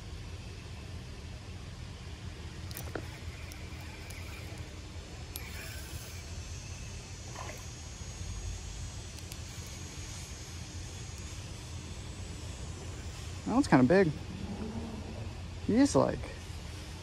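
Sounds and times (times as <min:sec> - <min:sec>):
small clicks: 0:02.6 - 0:07.7, 0:09.1 - 0:11.4.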